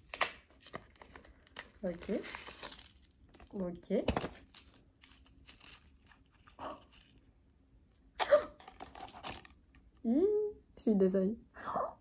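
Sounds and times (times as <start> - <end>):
paper packet rustling and crinkling: 0.0 - 7.3, 8.6 - 9.6.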